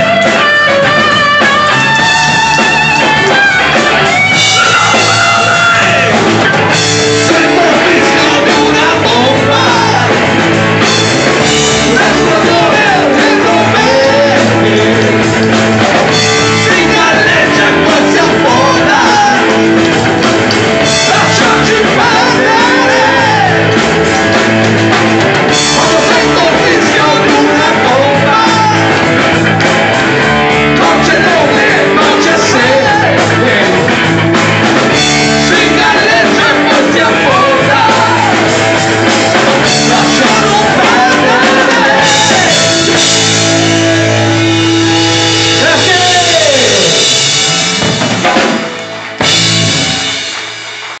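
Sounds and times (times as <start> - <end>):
live band playing: 0.0 - 51.0
man singing into microphone: 4.5 - 6.2, 7.0 - 10.2, 11.7 - 15.5, 16.4 - 19.6, 21.0 - 23.7, 25.6 - 29.0, 30.6 - 33.9, 35.2 - 38.6, 39.3 - 44.5, 45.5 - 47.1.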